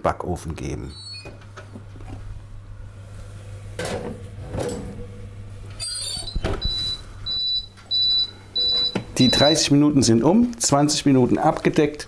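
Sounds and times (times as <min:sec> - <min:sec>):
dish scraping and clattering: 0:03.8 - 0:05.0.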